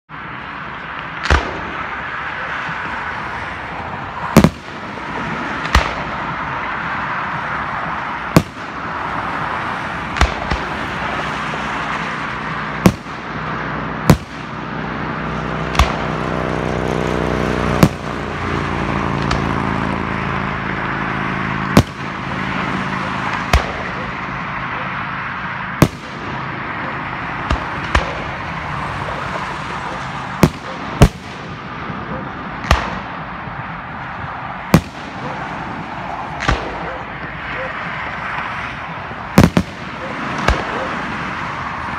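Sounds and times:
steady background noise: 0.1 - 41.9
firework shells bursting: 39.4 - 40.7.

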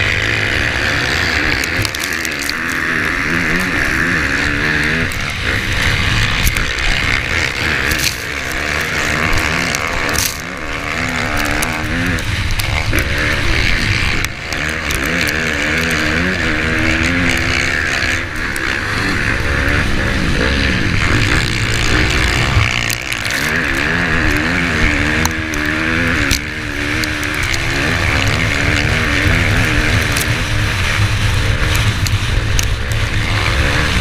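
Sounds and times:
dirt bike engine revving: 0.0 - 34.0
sharp ticks: 0.0 - 34.0.

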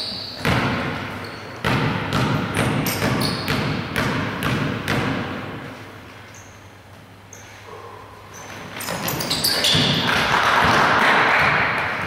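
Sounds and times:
basketball bouncing on gym floor: 0.0 - 5.7, 8.8 - 12.0.

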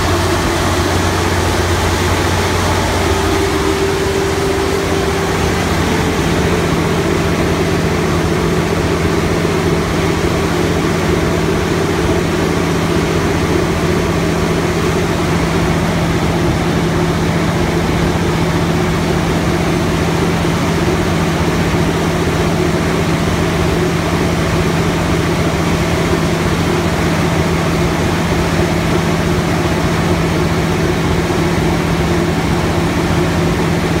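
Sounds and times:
diesel generator engine droning: 0.0 - 34.0.

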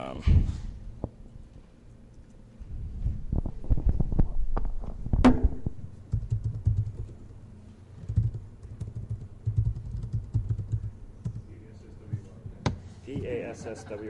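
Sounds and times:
computer keyboard typing: 6.1 - 7.2, 8.0 - 11.4.

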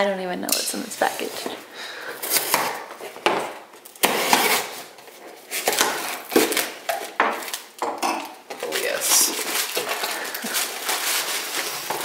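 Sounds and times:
cardboard tearing and rustling: 2.2 - 7.8, 8.6 - 12.0
blade slitting packing tape: 3.8 - 4.8.

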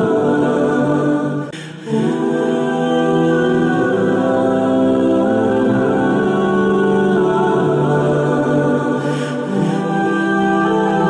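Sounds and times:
choir-like vocal chords: 0.0 - 11.0.

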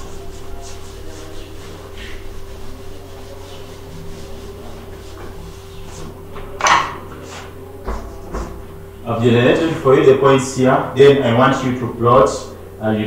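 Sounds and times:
duster rubbing on blackboard: 0.0 - 6.4, 7.2 - 8.5.

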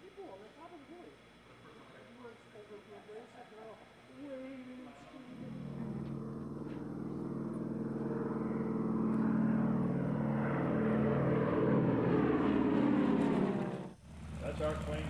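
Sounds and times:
propeller plane engine drone: 4.9 - 15.0.

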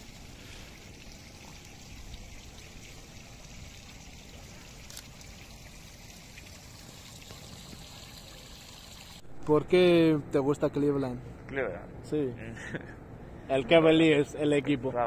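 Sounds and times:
water trickling: 0.0 - 9.3.

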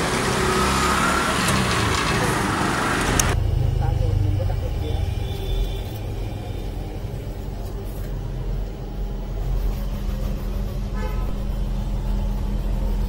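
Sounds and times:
street traffic rumbling: 0.0 - 13.0
vehicle horn toot: 5.2 - 6.0, 10.9 - 11.5.

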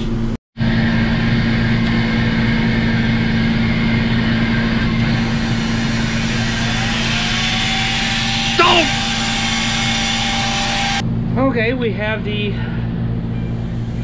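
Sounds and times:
motor droning: 0.6 - 11.2.

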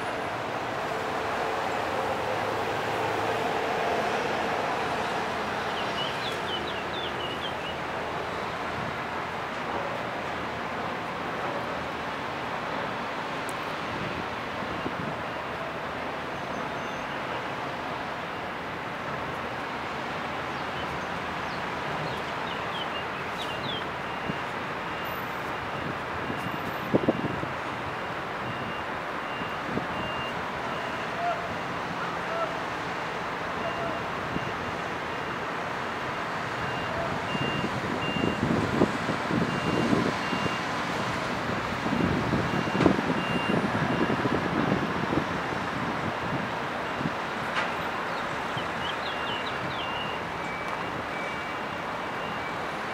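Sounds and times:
lorry engines rumbling: 0.0 - 52.9
lorries driving off a ramp: 23.5 - 48.5
reversing alarm beeps: 23.6 - 31.7, 33.6 - 35.5, 36.6 - 38.5, 39.4 - 40.7, 42.0 - 44.3, 48.8 - 52.7.

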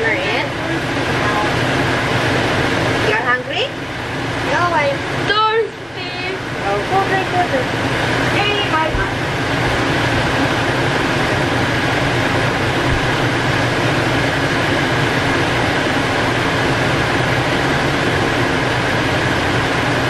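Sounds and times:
fan whirring: 0.0 - 20.0.

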